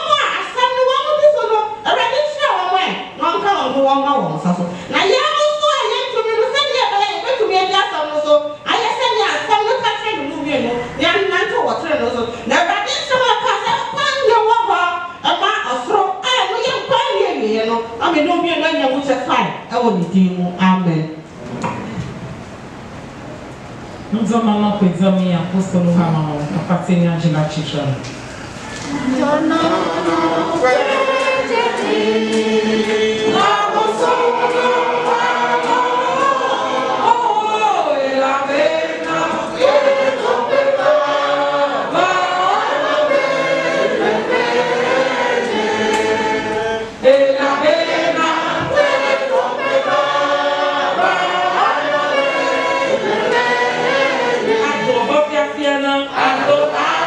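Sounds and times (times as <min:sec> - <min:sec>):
congregation singing a hymn: 0:28.2 - 0:57.0.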